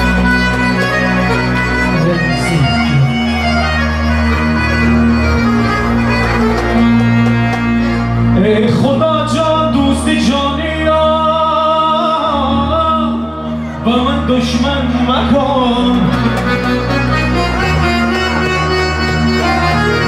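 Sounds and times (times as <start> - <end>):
steady bass: 0.0 - 20.0
synthesizer melody: 0.0 - 20.0
man singing: 8.3 - 16.4.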